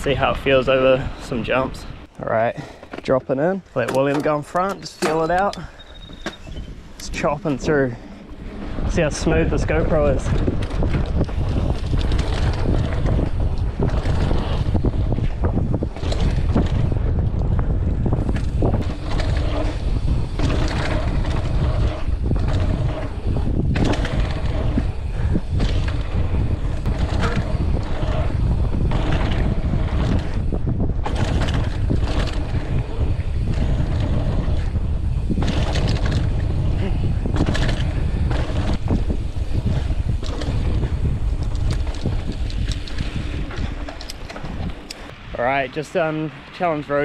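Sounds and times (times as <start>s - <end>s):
bike rattling over bumps: 0.0s - 47.0s
wind rushing over microphone: 0.0s - 47.0s
bike tyre roar: 4.0s - 47.0s.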